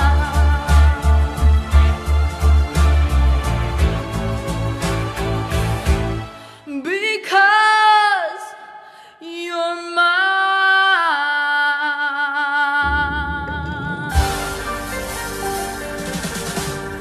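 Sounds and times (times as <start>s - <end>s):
woman singing: 0.0s - 2.1s, 6.6s - 14.6s
backing track: 0.0s - 6.6s, 12.8s - 17.0s.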